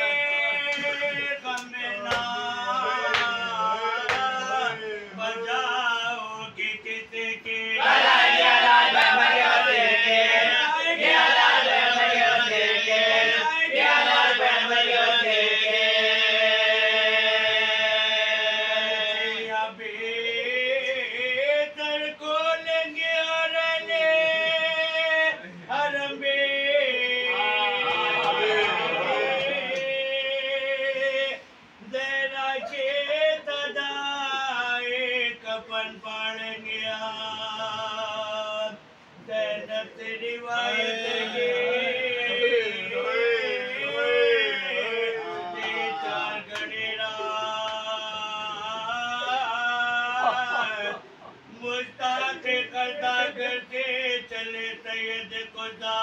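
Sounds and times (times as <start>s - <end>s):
man chanting a lament: 0.0s - 11.0s.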